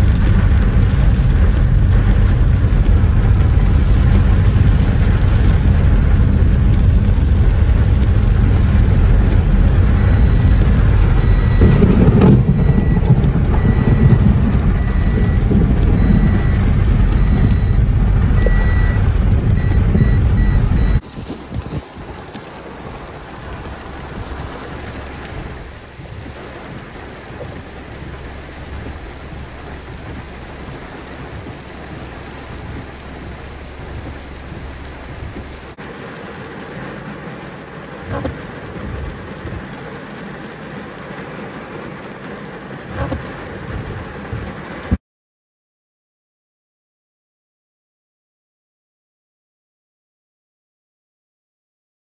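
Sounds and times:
low rumble: 0.0 - 35.8
heavy rain pouring: 0.0 - 45.0
rain pattering on car window: 0.0 - 45.0.

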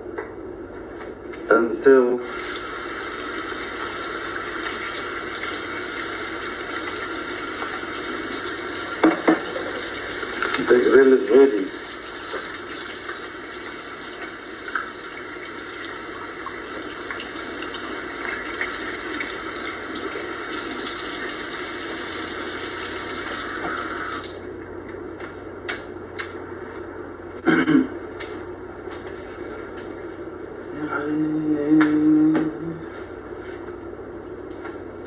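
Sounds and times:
faucet running into a sink: 2.2 - 24.5.

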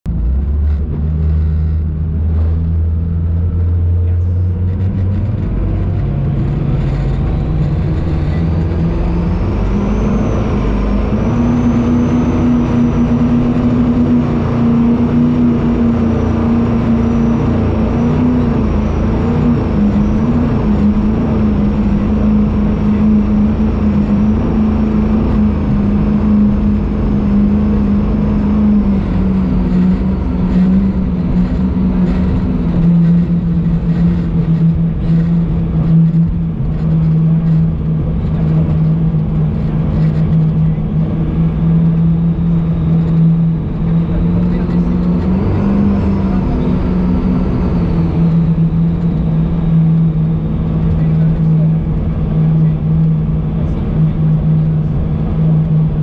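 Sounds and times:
high whine: 0.0 - 56.0
boat engines pulling hard: 0.1 - 56.0.

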